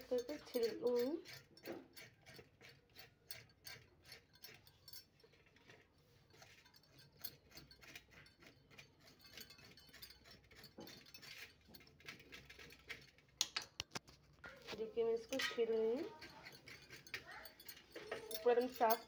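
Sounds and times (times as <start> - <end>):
blade tapping steel plate: 15.2 - 19.0.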